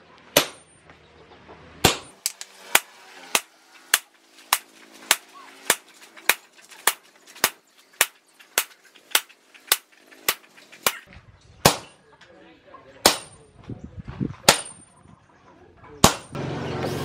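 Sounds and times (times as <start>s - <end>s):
hammer striking metal on anvil: 0.4s - 0.8s, 1.8s - 6.4s, 13.0s - 13.4s, 14.5s - 14.8s, 16.0s - 16.4s.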